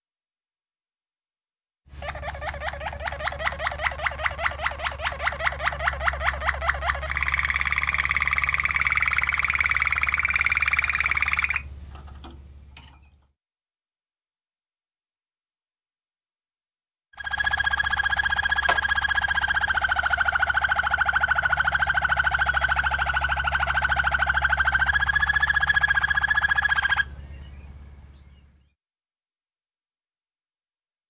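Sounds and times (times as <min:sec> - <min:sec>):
canary singing trills: 0:02.0 - 0:11.7, 0:17.2 - 0:28.8.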